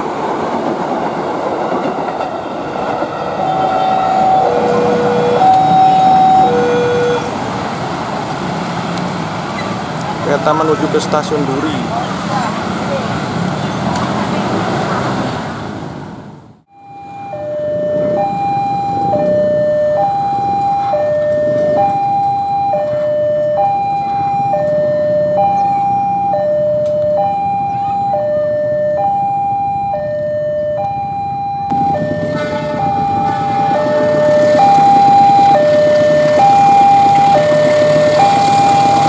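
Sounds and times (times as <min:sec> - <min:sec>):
two-tone crossing alarm chime: 0:03.2 - 0:07.3, 0:16.7 - 0:39.0.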